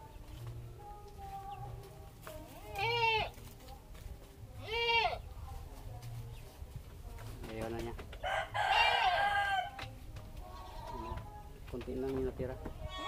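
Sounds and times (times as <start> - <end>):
goat bleating: 2.5 - 3.4, 4.6 - 5.2, 8.7 - 9.3.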